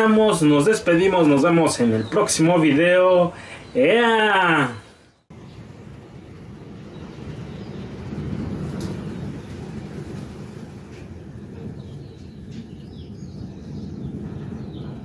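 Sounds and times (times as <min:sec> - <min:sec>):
low outdoor rumble: 0:05.3 - 0:15.0.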